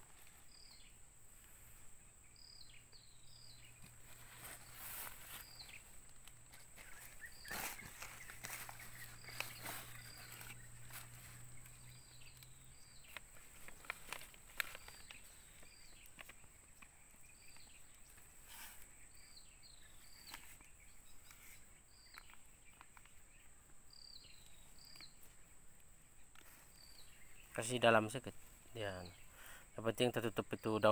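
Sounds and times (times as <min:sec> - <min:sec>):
bird chirping: 0:00.0 - 0:30.9
hands working soil in plastic bags: 0:03.7 - 0:23.3.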